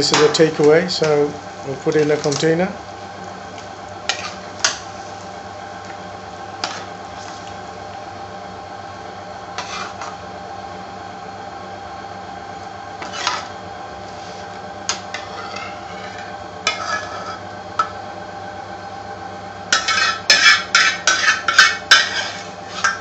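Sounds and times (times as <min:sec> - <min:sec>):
steady hum: 0:00.0 - 0:23.0
pan being scraped: 0:04.1 - 0:05.2, 0:06.6 - 0:07.6, 0:09.6 - 0:10.2, 0:13.0 - 0:17.9, 0:19.7 - 0:23.0.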